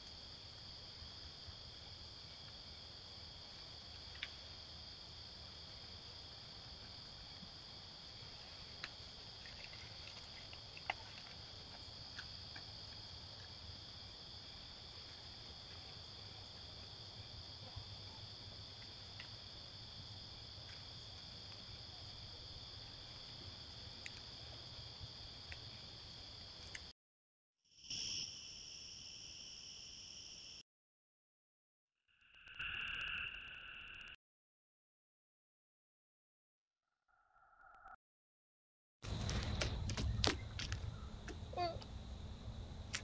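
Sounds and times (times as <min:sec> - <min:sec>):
insect chorus trilling: 0:27.8 - 0:30.6, 0:32.2 - 0:34.2.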